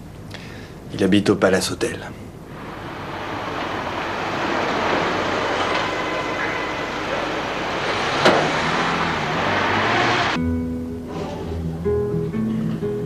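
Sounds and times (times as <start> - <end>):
street traffic: 2.3 - 10.4
car driving up and stopping: 2.4 - 10.4.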